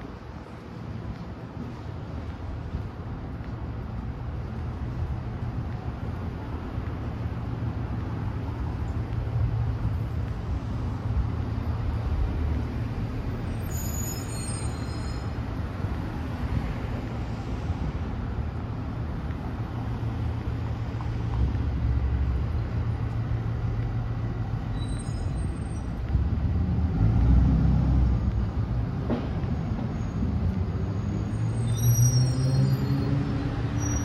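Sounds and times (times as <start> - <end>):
heavy city traffic rumble: 0.0 - 34.0.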